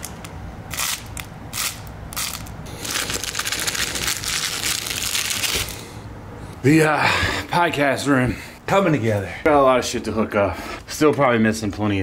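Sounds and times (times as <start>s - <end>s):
plush toy crinkling: 2.3s - 5.8s.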